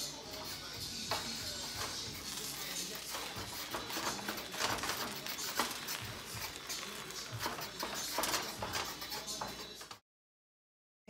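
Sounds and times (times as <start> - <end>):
wooden spoon scraping a pan: 1.1 - 10.0
greens rustling: 1.3 - 9.4.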